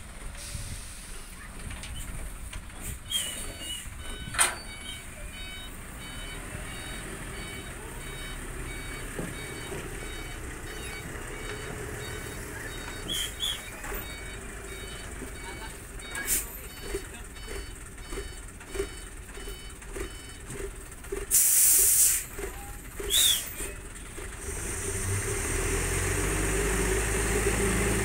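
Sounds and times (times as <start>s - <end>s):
diesel truck engine running: 0.0s - 28.0s
warning beeper short beeps: 3.2s - 20.5s.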